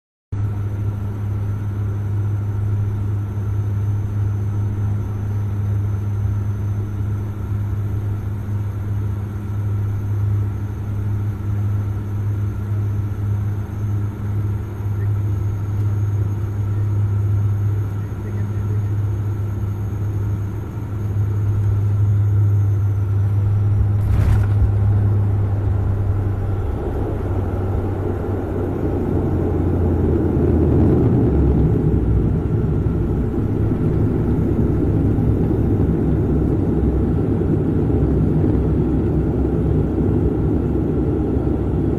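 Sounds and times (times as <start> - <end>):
airliner engines drone: 0.4 - 41.9
airliner rolling on runway: 0.4 - 41.9
landing thump: 23.8 - 25.2.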